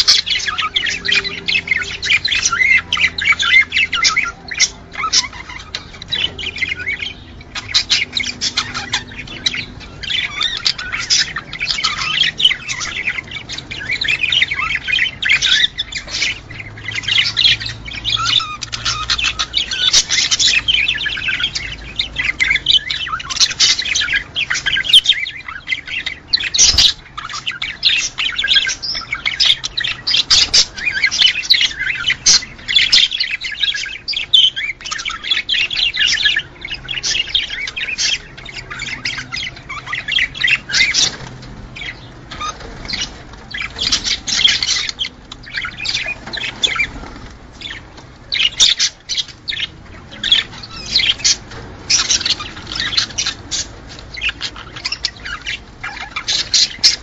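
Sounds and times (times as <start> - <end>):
budgerigars chattering: 0.0 - 57.0.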